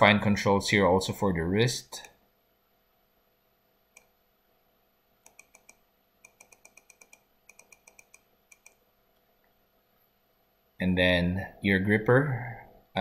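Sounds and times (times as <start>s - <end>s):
computer mouse clicks: 5.2s - 8.8s.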